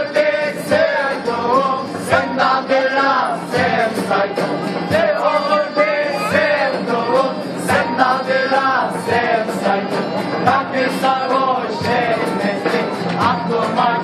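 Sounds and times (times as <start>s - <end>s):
acoustic guitar: 0.0s - 14.0s
men singing folk song: 0.0s - 14.0s.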